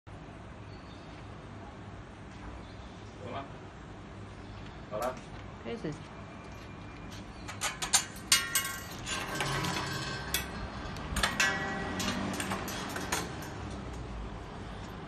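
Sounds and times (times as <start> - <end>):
plastic hangers clacking on metal pole: 7.5 - 14.0.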